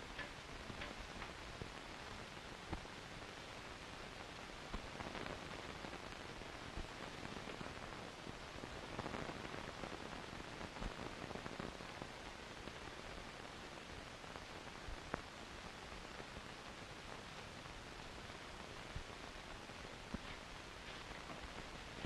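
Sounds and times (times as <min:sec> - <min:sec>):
faint clicks: 0:00.0 - 0:01.8
film soundtrack hiss: 0:00.0 - 0:22.0.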